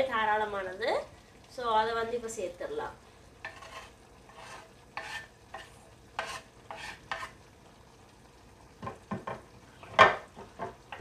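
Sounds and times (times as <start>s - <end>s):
curry sizzling: 0.0s - 11.0s
wooden spatula scraping a clay pot: 3.4s - 7.4s.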